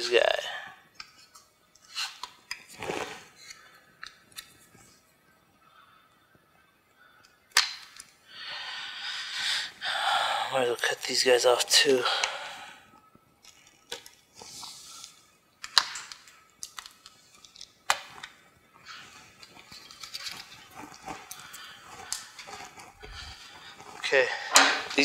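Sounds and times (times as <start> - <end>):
sharp plastic clicks and snaps: 7.2 - 8.1, 15.0 - 18.4.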